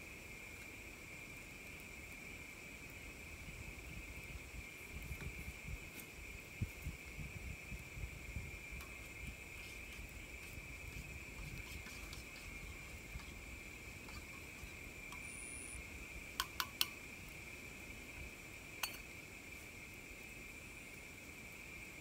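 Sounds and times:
high-pitched insect drone: 8.8 - 16.8
metal spoon clinking steel cup: 18.8 - 19.0.

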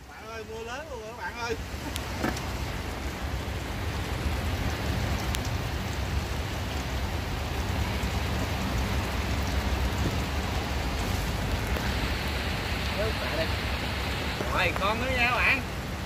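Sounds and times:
heavy rain pouring: 0.0 - 16.0
low rumble: 1.6 - 14.8.

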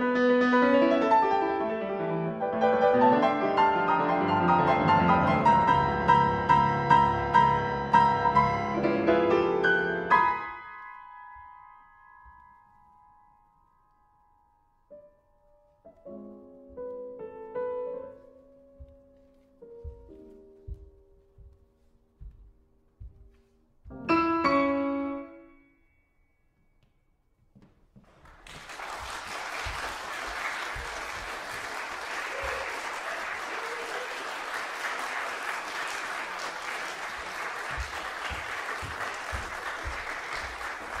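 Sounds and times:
piano chord ringing: 24.0 - 27.1
audience applause: 28.1 - 41.0.

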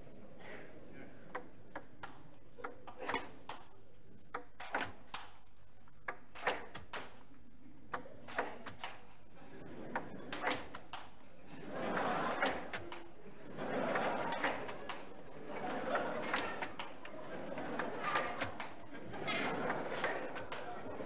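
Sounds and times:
table tennis ball clicking: 4.3 - 5.4.

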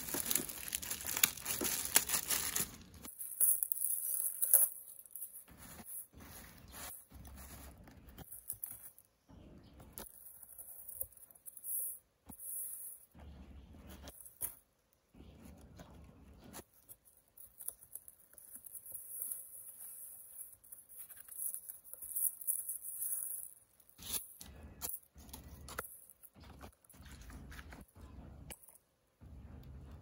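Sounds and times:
packing tape pulled: 0.0 - 4.9
cardboard parcel being opened: 0.0 - 9.0.

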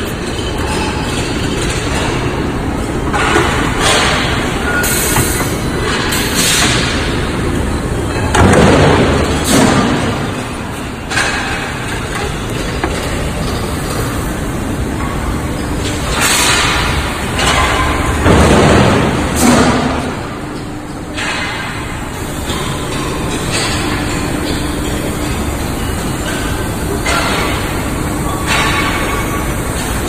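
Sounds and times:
factory machinery rumble: 0.0 - 30.0.

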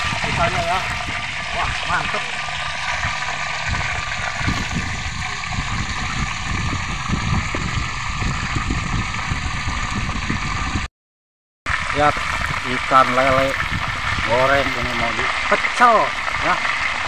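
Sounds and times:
fish deep-frying in oil: 0.0 - 10.9, 11.7 - 17.0
low rumble: 0.0 - 10.9.

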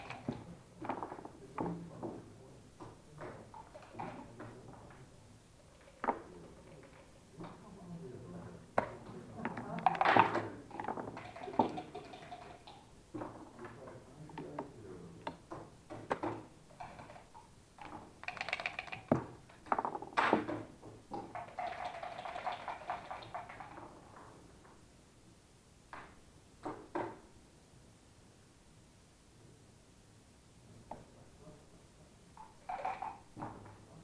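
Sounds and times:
checkers clicking on board: 0.0 - 0.5, 9.6 - 12.8, 16.8 - 19.1, 21.2 - 23.8
dice rattling: 9.7 - 12.9, 16.8 - 19.1, 21.3 - 23.8.

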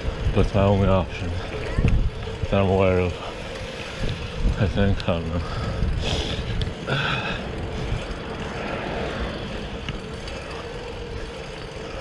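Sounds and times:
traffic passing: 0.0 - 12.0
wind and tyre rumble: 0.0 - 12.0.

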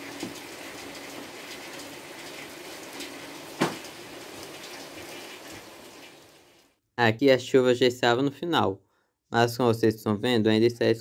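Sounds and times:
light rain hissing: 0.0 - 6.8.

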